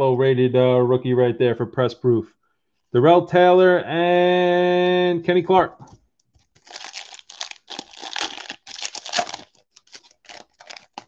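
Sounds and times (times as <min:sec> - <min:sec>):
foil wrapper crinkling and tearing: 0:06.4 - 0:11.0.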